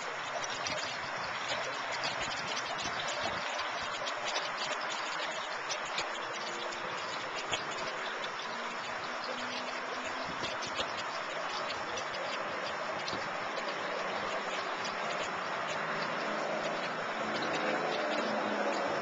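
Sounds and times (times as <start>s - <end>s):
fountain trickling water: 0.0s - 19.0s.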